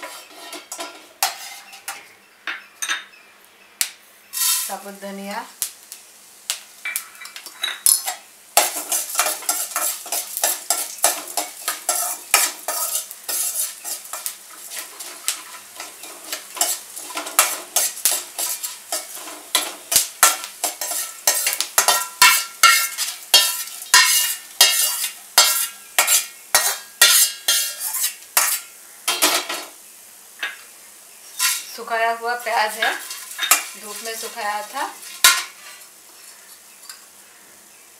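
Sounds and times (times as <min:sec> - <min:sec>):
metal spatula scraping a pan: 0:00.0 - 0:02.1, 0:04.4 - 0:04.8, 0:06.9 - 0:29.7, 0:31.3 - 0:31.8, 0:32.5 - 0:37.0
seeds rattling in a pan: 0:04.3 - 0:04.9, 0:32.4 - 0:36.7.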